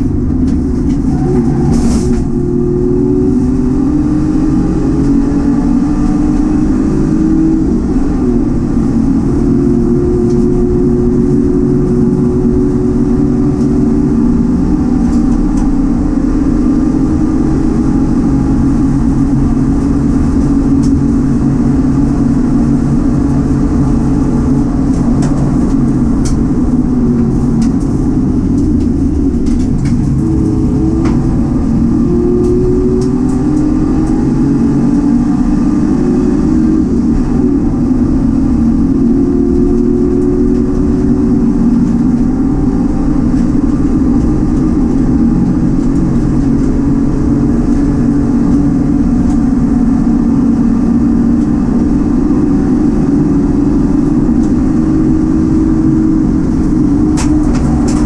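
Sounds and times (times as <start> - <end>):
race car engine revving: 0.0 - 58.0.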